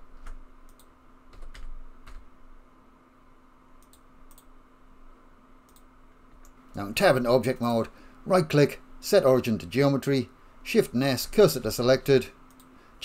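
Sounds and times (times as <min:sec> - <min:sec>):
faint steady hum: 0:00.0 - 0:13.0
keyboard key presses: 0:01.3 - 0:02.2
mouse clicks: 0:03.8 - 0:04.5, 0:05.7 - 0:06.6.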